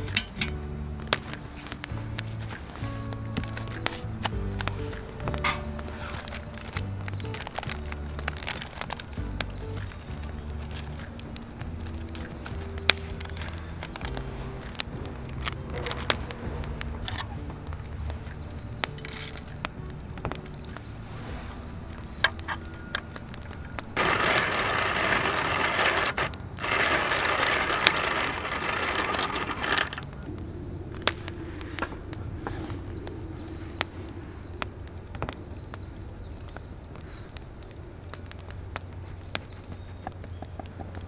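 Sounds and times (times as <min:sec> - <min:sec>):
background music: 0:00.0 - 0:28.6
coffee beans rattling: 0:23.9 - 0:30.1
coffee mill grinding beans: 0:24.0 - 0:30.0.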